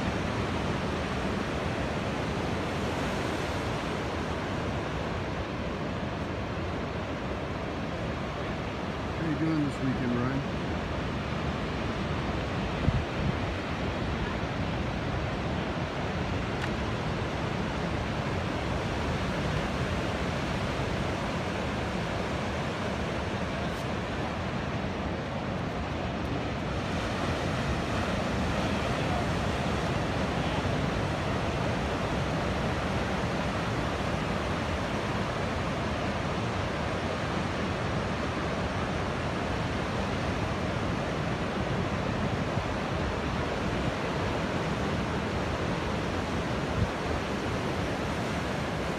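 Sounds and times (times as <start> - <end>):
surf breaking on beach: 8.2 - 48.9
wind buffeting microphone: 11.0 - 33.6.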